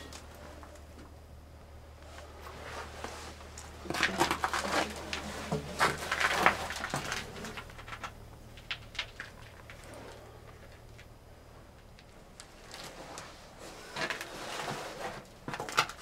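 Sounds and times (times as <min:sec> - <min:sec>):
low steady hum: 0:00.0 - 0:16.0
scraping and rustling in metal compartment: 0:12.7 - 0:16.0.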